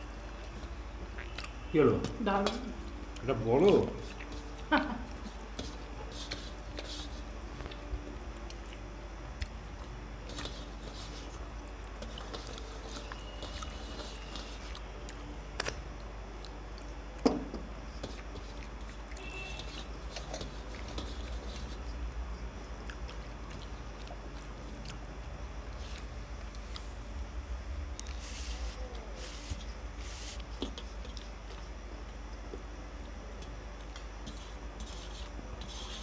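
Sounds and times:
steady low hum: 0.0 - 36.0
fingers mixing rice: 0.3 - 26.9, 27.9 - 36.0
chewing: 0.6 - 1.6, 3.0 - 6.9, 7.6 - 17.2, 17.8 - 26.9.

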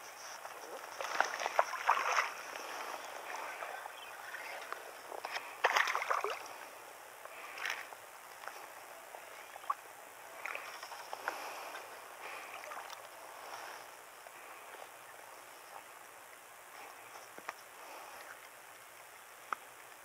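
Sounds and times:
fish splashing at water surface: 5.6 - 6.5.

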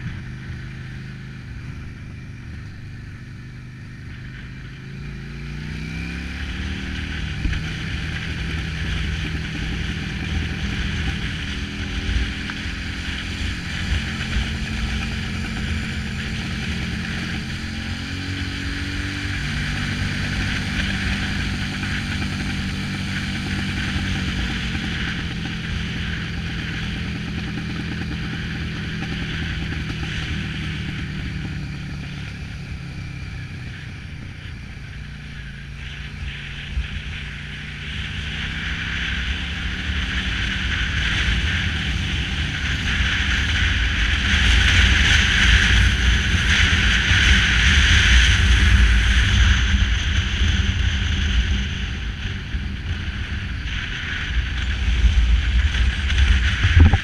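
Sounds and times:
motorcycle engine running: 0.0 - 57.0
wind rushing over microphone: 5.0 - 57.0.

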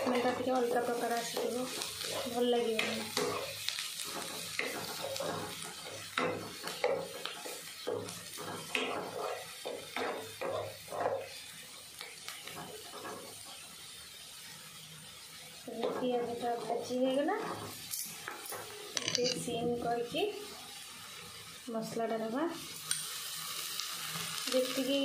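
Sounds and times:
spatula scraping a pan: 0.0 - 11.6, 12.3 - 13.6, 15.7 - 19.4
onions sizzling in oil: 0.0 - 25.0.

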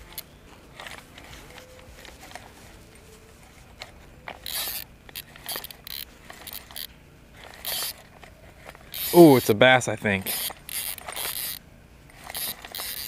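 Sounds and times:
fishing reel clicking and rattling: 3.8 - 13.0.

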